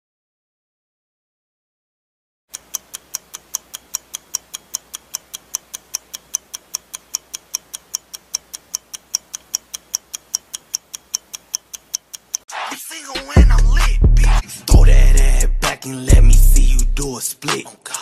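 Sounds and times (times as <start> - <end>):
clock ticking fast: 2.5 - 12.5, 13.4 - 17.1.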